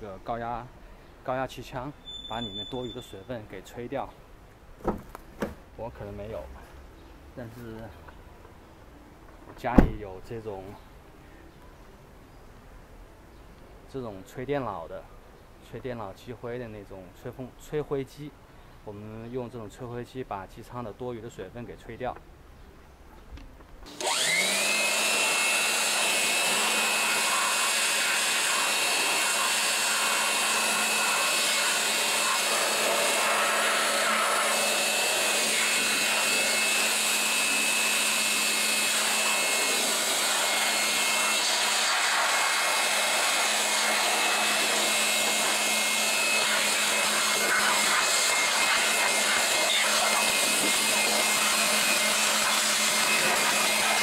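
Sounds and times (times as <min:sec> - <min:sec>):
electric blower whining: 0:23.9 - 0:54.0.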